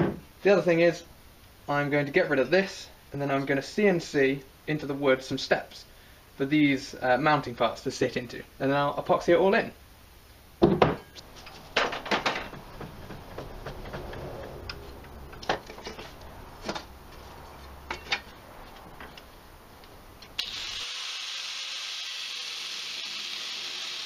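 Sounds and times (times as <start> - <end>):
knocks and clatter in vise: 10.6 - 16.9
angle grinder running: 20.4 - 24.0.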